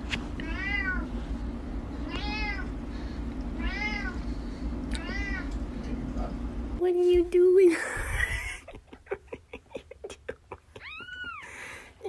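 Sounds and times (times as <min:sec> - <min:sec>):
cat meowing: 0:00.4 - 0:01.0, 0:02.1 - 0:02.7, 0:03.6 - 0:04.2, 0:05.0 - 0:05.5.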